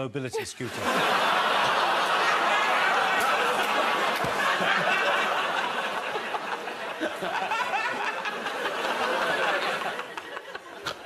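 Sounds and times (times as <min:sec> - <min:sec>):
studio audience laughing: 0:00.5 - 0:11.0.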